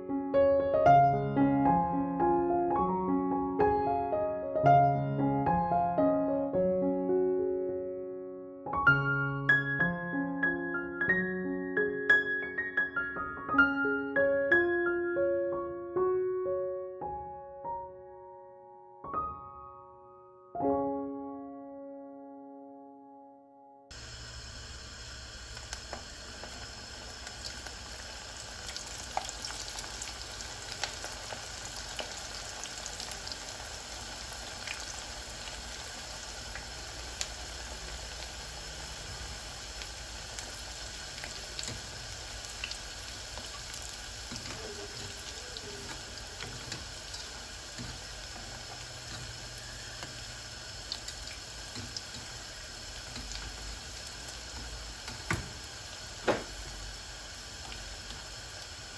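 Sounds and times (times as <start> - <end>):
dough frying in hot oil: 23.9 - 58.9.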